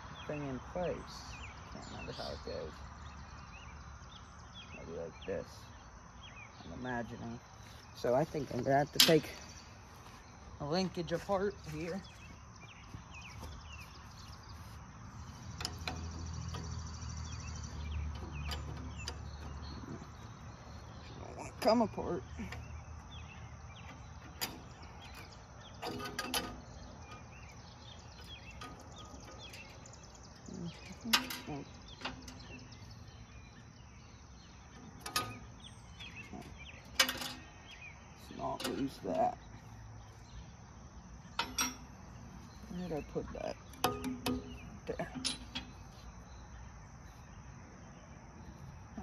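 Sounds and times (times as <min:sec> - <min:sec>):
birds chirping: 0:00.0 - 0:49.0
high insect trill: 0:00.0 - 0:49.0
tool clinking on metal: 0:08.9 - 0:09.5, 0:23.8 - 0:32.8, 0:34.8 - 0:37.7, 0:41.3 - 0:42.2, 0:43.0 - 0:46.0.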